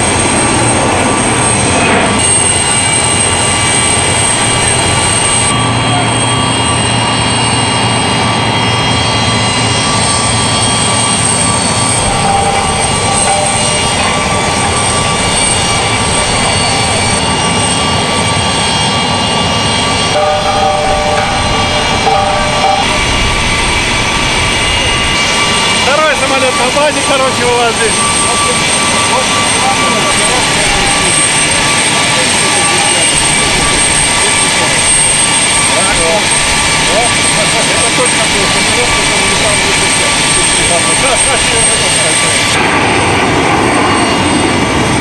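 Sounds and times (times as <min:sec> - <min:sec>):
jet turbine rumble and whine: 0:00.0 - 0:45.0.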